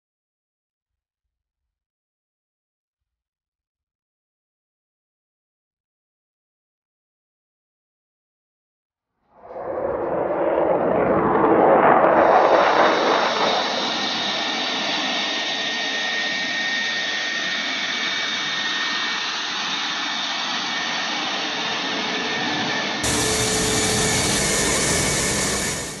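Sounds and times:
jet engines whining: 9.6 - 26.0.

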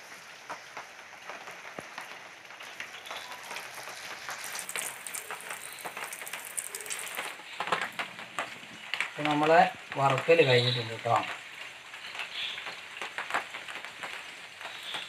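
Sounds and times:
deep-frying sizzle with pops: 0.0 - 15.0.

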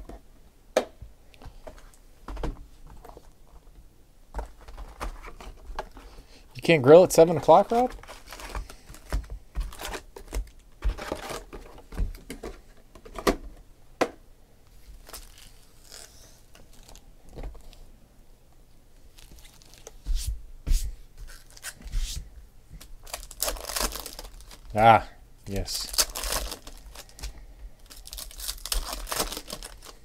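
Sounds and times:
foil packs crinkling: 6.9 - 12.0, 15.0 - 17.1, 19.1 - 20.0, 22.8 - 30.0
packs tapping down: 28.0 - 30.0.

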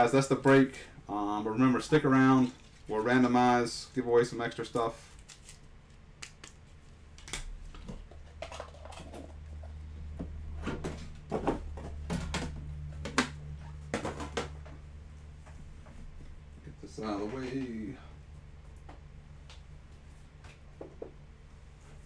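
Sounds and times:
low steady hum: 0.0 - 22.0
knocks and clatters of boxes: 7.8 - 14.8.

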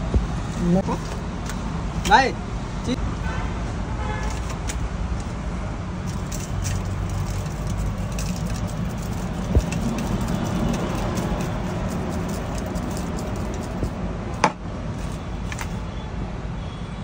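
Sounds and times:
low traffic rumble: 0.0 - 17.0
small clicks and clinks: 6.0 - 14.0.

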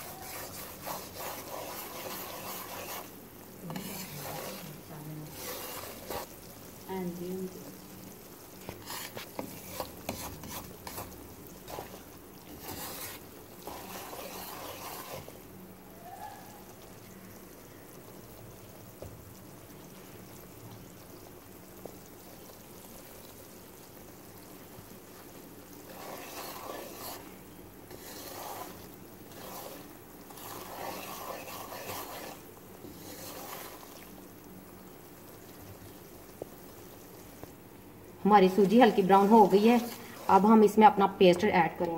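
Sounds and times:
wooden spatula stirring and scraping: 0.0 - 6.6, 8.5 - 15.5, 24.6 - 37.6, 38.2 - 41.9
semolina sizzling in ghee: 0.0 - 41.9.

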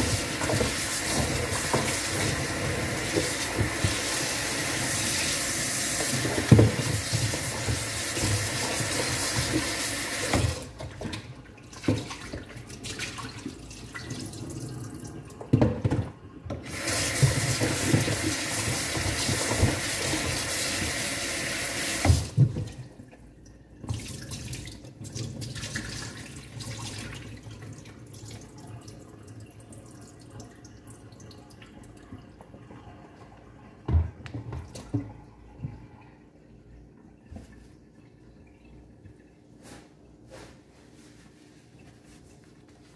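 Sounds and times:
kitchen tap running into sink: 0.0 - 23.1
knocks and clunks in sink: 6.0 - 12.5, 15.4 - 21.0, 22.0 - 22.9, 33.8 - 35.9.

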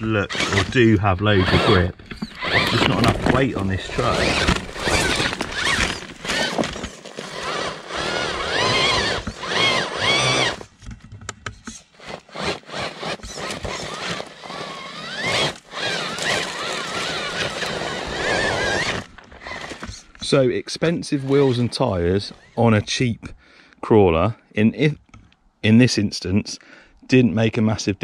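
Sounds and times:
rc car motor whining: 0.0 - 10.7, 11.5 - 20.3, 21.2 - 22.6
tyres scrabbling on rocks: 0.3 - 20.3.

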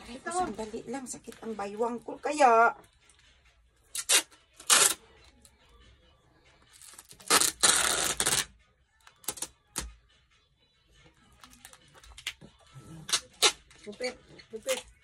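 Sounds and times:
packing tape ripping off roll: 3.9 - 5.0, 6.8 - 8.5, 9.2 - 9.9, 13.0 - 13.7.

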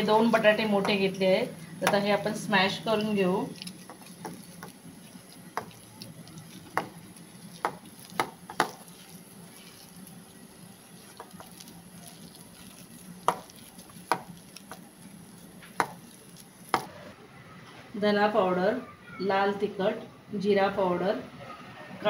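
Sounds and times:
potatoes squishing: 0.0 - 16.9.

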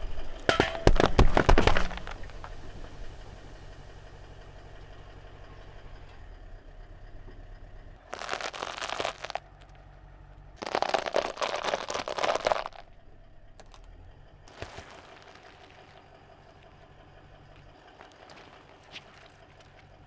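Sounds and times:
car engine rumble: 0.0 - 20.0
tyre crushing dry food: 0.6 - 2.6, 8.1 - 9.4, 10.6 - 12.9, 13.6 - 13.9, 14.5 - 16.0, 18.0 - 19.8.

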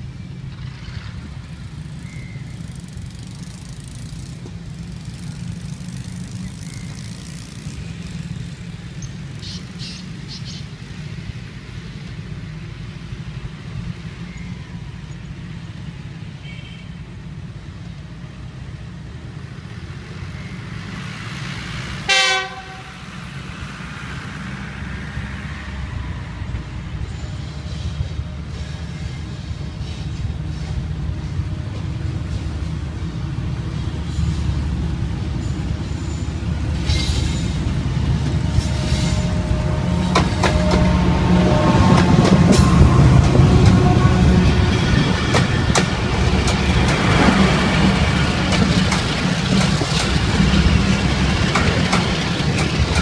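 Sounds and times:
locomotive engine rumbling: 0.0 - 53.0
train horn blast: 22.0 - 23.1, 38.3 - 45.2.

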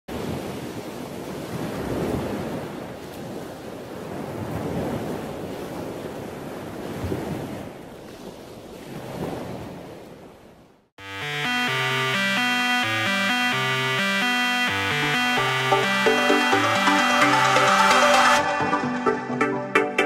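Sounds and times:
wind: 0.1 - 10.9.

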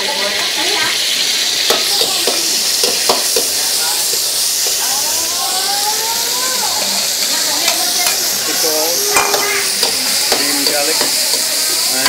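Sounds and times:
food sizzling in a wok: 0.0 - 12.0
ladle clacking against wok: 1.7 - 4.8, 9.1 - 12.0
metal ladle stirring: 9.1 - 12.0.

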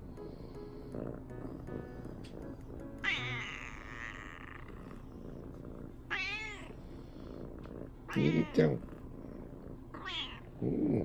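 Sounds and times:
kitten meowing: 3.0 - 4.4, 8.1 - 8.7, 10.0 - 10.4.

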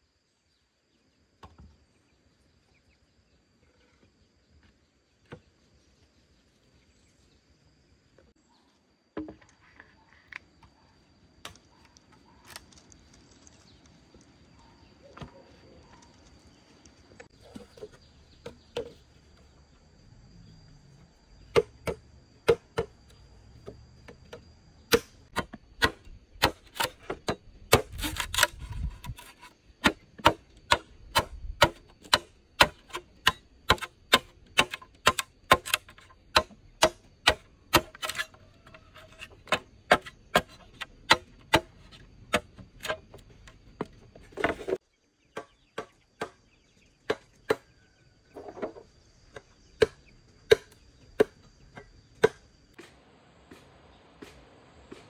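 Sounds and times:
tool striking wood: 21.5 - 23.0, 23.6 - 43.2, 49.4 - 52.9.

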